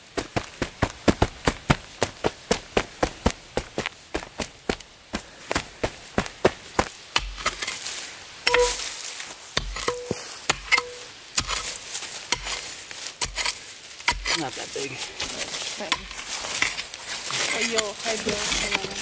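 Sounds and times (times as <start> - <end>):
shovel striking stony soil: 7.1 - 9.0, 9.6 - 19.0
metal ringing on stone: 8.5 - 8.9, 9.6 - 11.1.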